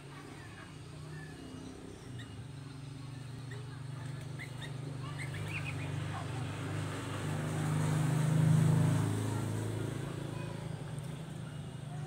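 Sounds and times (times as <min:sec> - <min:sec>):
motor vehicle engine hum: 0:00.0 - 0:12.0
bird chirps: 0:04.3 - 0:06.0.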